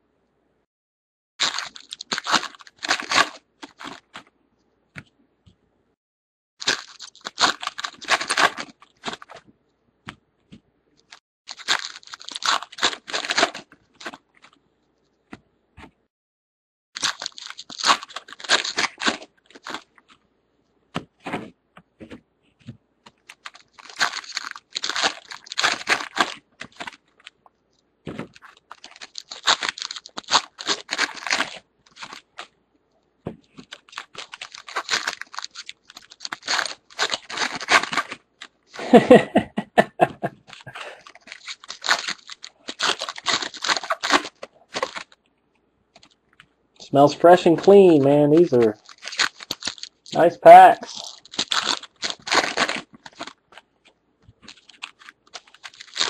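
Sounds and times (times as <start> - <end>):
foil wrappers tearing and crinkling: 1.4 - 4.2, 6.6 - 9.4, 11.0 - 14.6, 17.0 - 20.1, 23.1 - 27.4, 28.1 - 32.5, 33.6 - 39.1, 40.4 - 45.2, 46.8 - 53.6, 54.4 - 56.0.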